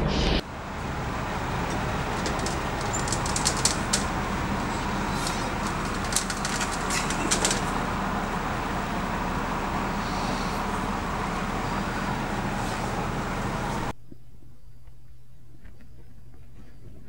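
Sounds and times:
background traffic noise: 0.0s - 14.0s.

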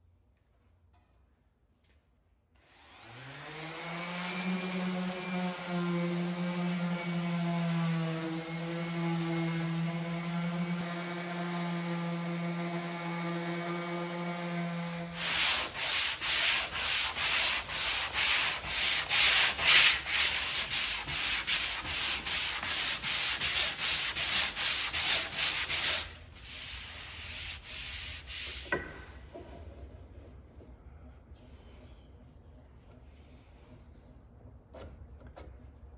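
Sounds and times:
hand sanding strokes: 2.9s - 29.2s
orbital sander running: 3.0s - 25.8s.

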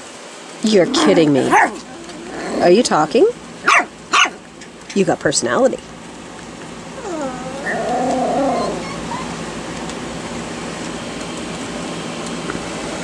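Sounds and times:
puppy howling whine: 0.9s - 2.8s, 6.9s - 9.6s.

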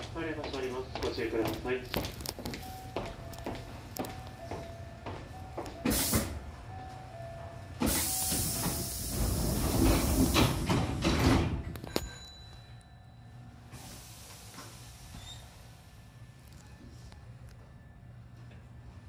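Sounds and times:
train door air hiss: 5.8s - 6.4s, 7.8s - 11.6s, 13.7s - 15.9s
sliding doors knocking shut: 7.8s - 11.7s.

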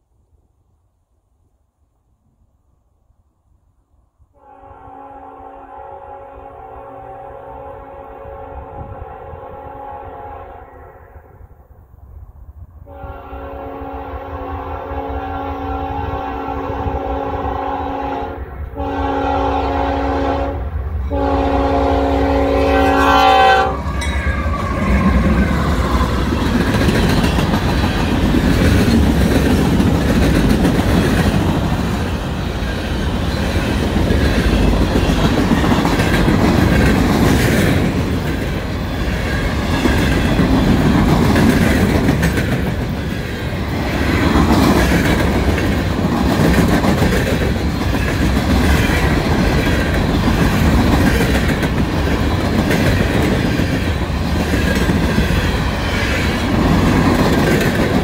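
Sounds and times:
locomotive horn: 4.4s - 11.0s, 12.9s - 26.0s
train wheels clacking on rails: 23.7s - 58.0s.

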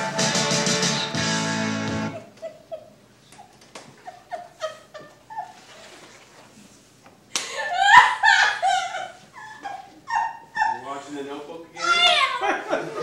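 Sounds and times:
woman vocalizing with cries: 7.6s - 10.8s, 11.8s - 12.5s.

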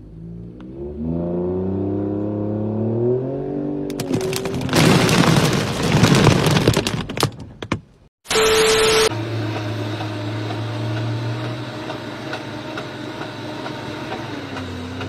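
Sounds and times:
truck engine revving: 9.0s - 15.0s.

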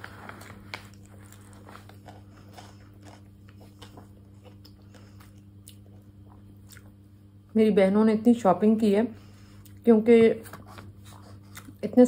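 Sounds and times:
steady low hum: 0.0s - 12.0s
person chewing: 0.1s - 7.0s, 10.5s - 11.8s.

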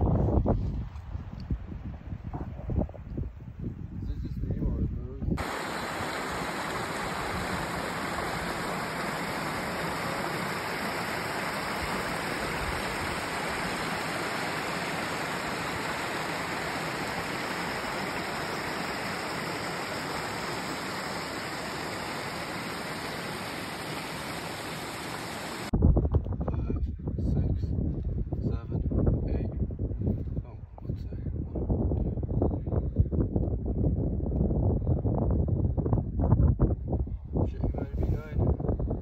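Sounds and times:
creek rushing over rocks: 5.4s - 25.7s.

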